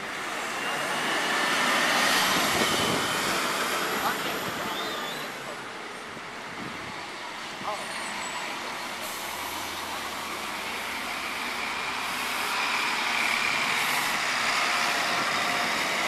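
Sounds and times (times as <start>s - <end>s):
bus engine passing: 0.0s - 16.0s
traffic noise: 0.0s - 16.0s.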